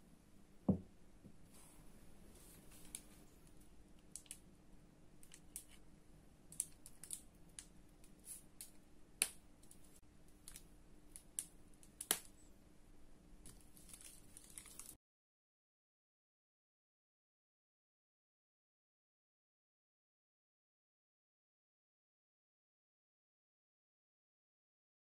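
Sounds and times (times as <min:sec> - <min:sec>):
faint steady hum: 0:00.0 - 0:14.9
piping bag crinkling and clicking: 0:06.5 - 0:08.8, 0:13.5 - 0:15.0.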